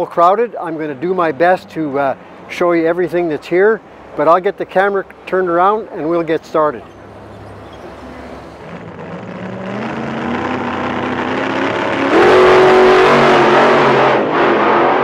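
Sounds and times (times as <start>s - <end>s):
car engine revving: 6.7s - 15.0s
rushing noise: 7.0s - 15.0s.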